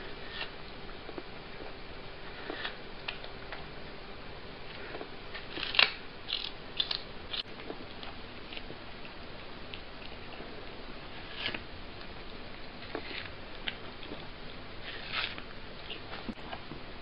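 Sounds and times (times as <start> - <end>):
background hiss: 0.0 - 17.0
cat chewing: 4.6 - 16.8.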